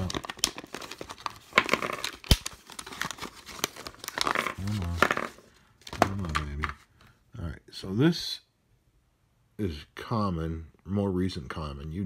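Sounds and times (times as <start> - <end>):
plastic packaging crinkling: 0.0 - 6.6.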